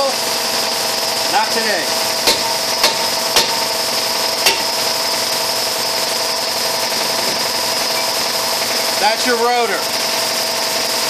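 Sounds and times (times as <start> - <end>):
machine hum with high whine: 0.0 - 11.0
hammer knocks on metal: 2.3 - 3.6, 4.4 - 4.7.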